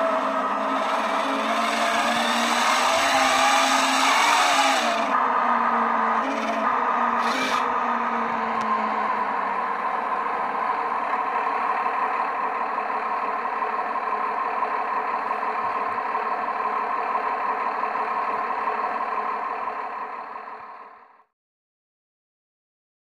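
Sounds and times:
engine idling from small loudspeaker: 4.9 - 21.2.

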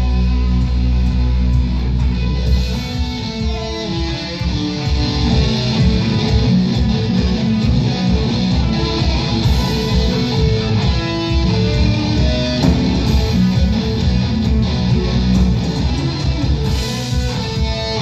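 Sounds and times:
bass guitar: 0.0 - 18.0
drums: 0.0 - 18.0
electric guitars: 0.0 - 18.0.

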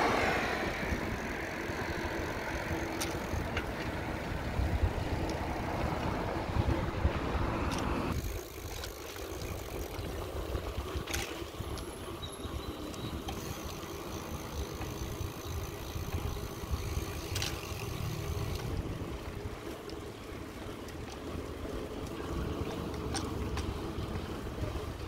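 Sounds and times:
bicycle road noise: 0.0 - 25.0
wind on microphone: 2.7 - 11.8.

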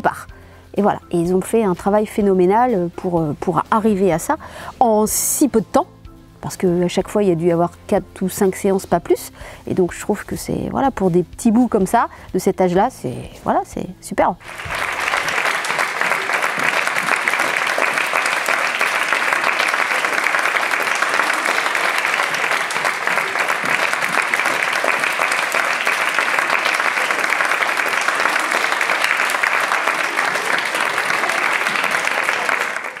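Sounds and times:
audience clapping: 14.4 - 33.0.

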